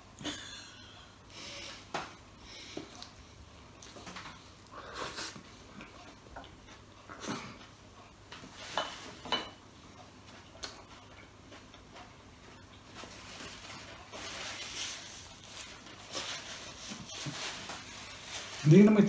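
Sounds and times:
chewing burger: 2.8 - 8.6
tableware clink: 8.7 - 9.6
paper napkin rustle: 11.5 - 19.0.

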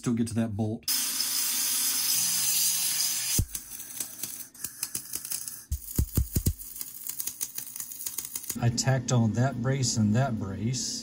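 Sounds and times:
welding arc crackling and popping: 2.0 - 8.6.

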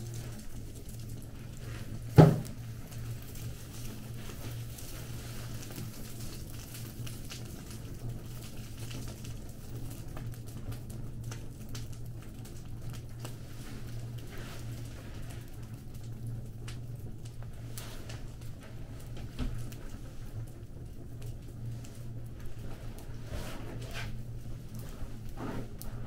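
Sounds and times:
fire crackling: 0.0 - 26.0
loud pop: 2.2 - 2.5
steady low hum: 12.2 - 26.0.

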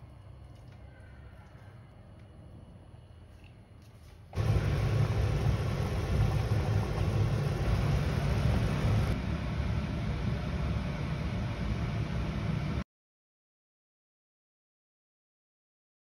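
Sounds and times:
hiss: 4.4 - 9.2
steady rumbling noise: 4.4 - 12.8.

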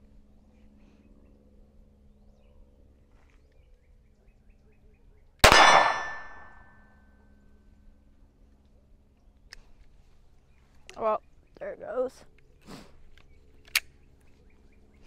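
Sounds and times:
pistol shot: 5.4 - 6.6.

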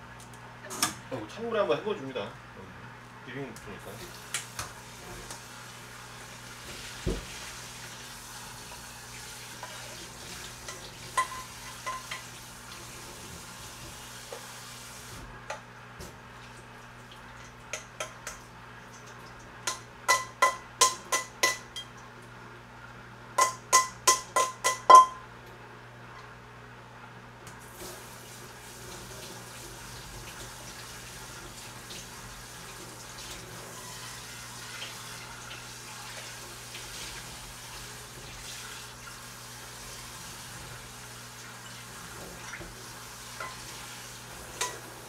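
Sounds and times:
running water rinsing noodles: 3.8 - 15.3, 16.0 - 19.7, 27.6 - 45.0
ringing metal cookware knocks: 23.4 - 25.2.

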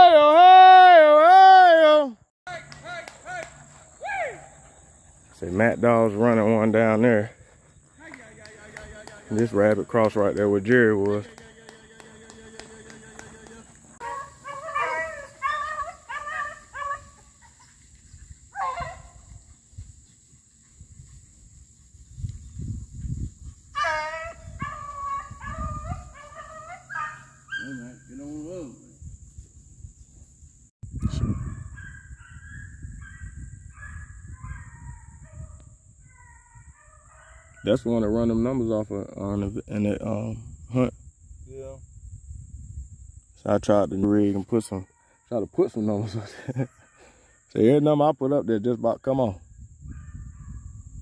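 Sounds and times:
beagles baying: 2.7 - 20.4, 23.6 - 28.4, 31.2 - 37.9, 44.7 - 45.4, 46.3 - 47.6.

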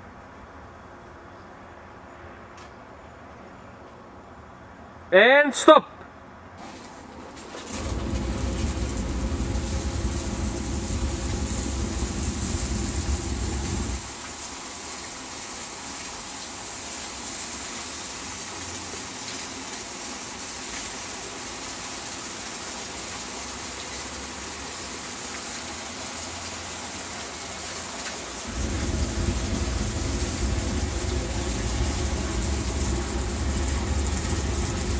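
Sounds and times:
water spraying hiss: 6.6 - 34.9
low rumble: 7.8 - 14.1, 28.5 - 34.9.

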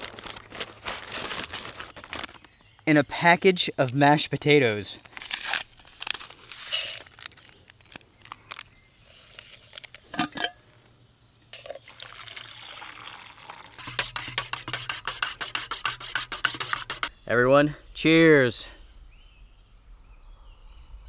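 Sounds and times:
paper packet tearing: 0.0 - 2.4, 5.0 - 9.8
metal clink: 10.1 - 10.6
water pouring into mug: 11.6 - 13.9
spoon stirring against mug: 13.8 - 17.1.

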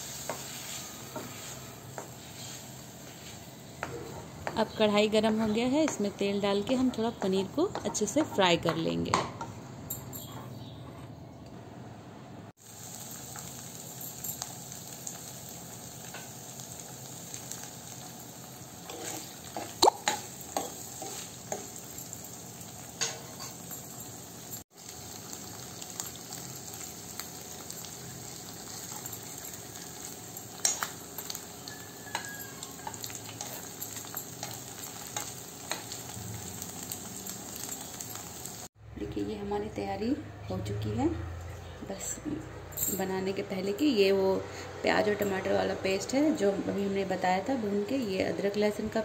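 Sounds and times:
frying sizzle in hot oil: 0.0 - 8.2, 12.5 - 38.8
spoon knocking and scraping pan: 0.2 - 9.6, 18.8 - 21.9, 30.0 - 36.1.

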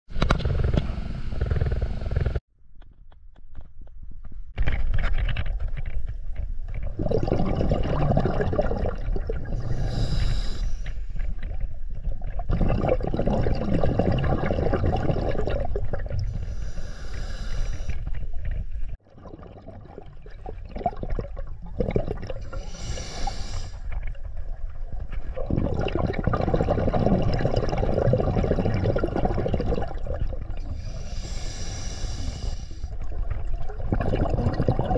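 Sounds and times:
bubbling exhaled air: 6.8 - 34.9
regulator inhalation hiss: 9.7 - 11.2, 16.4 - 18.1, 22.5 - 23.9, 30.7 - 32.9.

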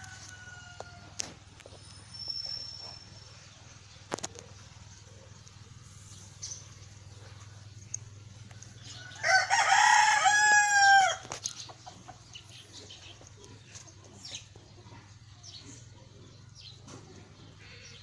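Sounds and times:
rooster crowing: 0.0 - 1.2, 8.8 - 11.4.

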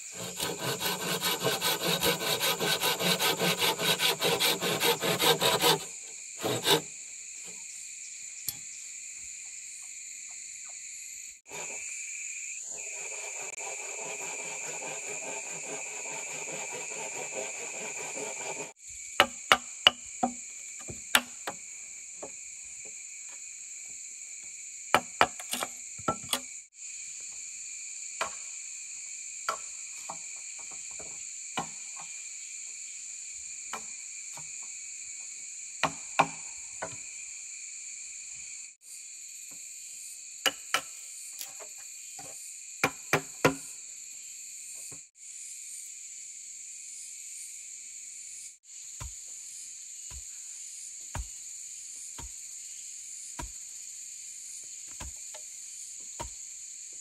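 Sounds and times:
high chorus of insects: 0.0 - 57.0
tool knocking on bamboo: 19.2 - 21.6, 42.2 - 43.6, 55.0 - 55.4.

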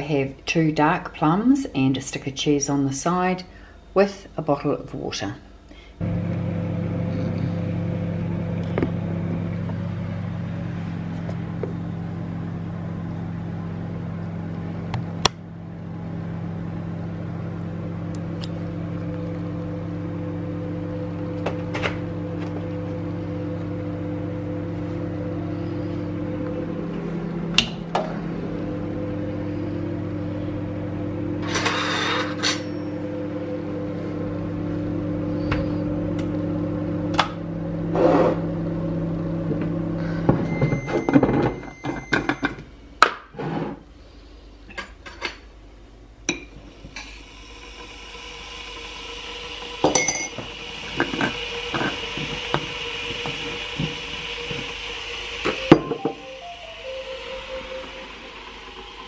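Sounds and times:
low hum: 5.7 - 37.8, 55.5 - 59.0
kettle heating hiss: 46.6 - 59.0.

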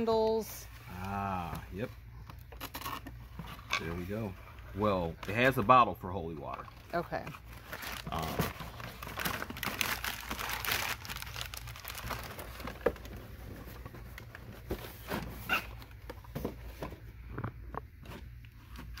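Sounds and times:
packing paper crinkling: 6.5 - 14.7.

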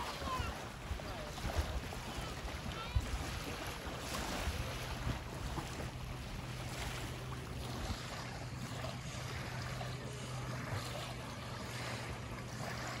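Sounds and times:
low hum: 0.0 - 13.0
waves lapping on pebbles: 0.0 - 13.0.

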